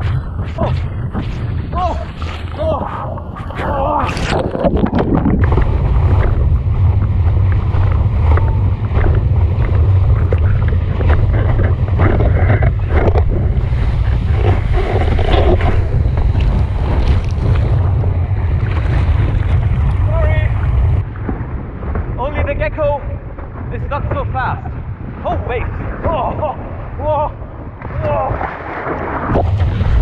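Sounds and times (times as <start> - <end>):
rushing water: 0.0 - 30.0
wind buffeting microphone: 0.0 - 30.0.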